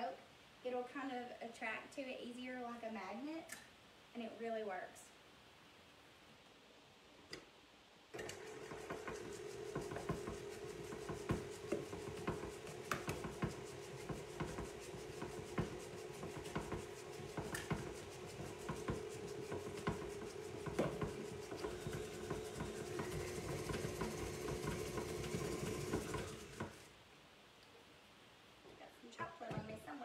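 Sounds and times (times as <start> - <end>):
stand mixer running: 8.2 - 26.9.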